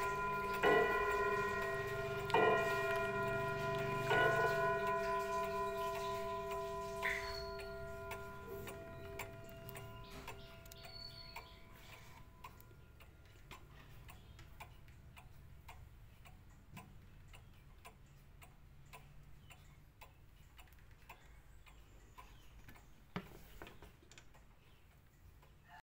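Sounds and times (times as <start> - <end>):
clock chime ringing: 0.0 - 13.3
pendulum clock ticking: 0.0 - 23.2, 23.8 - 25.8.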